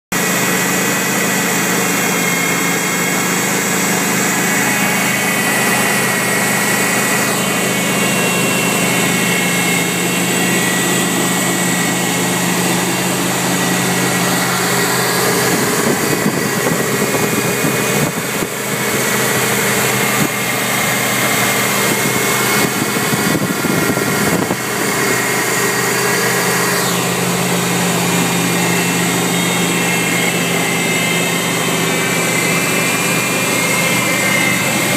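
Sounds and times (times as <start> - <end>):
high whine: 0.1 - 34.9
pickup engine idling: 0.1 - 34.9.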